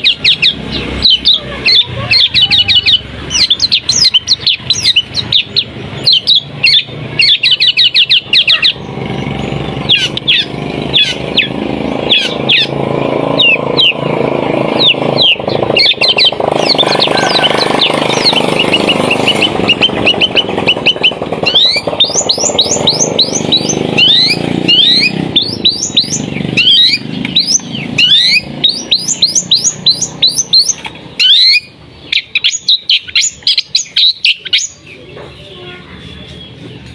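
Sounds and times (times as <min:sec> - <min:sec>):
broad background noise: 0:00.0 - 0:36.9
bird singing sharp whistles: 0:18.1 - 0:34.8.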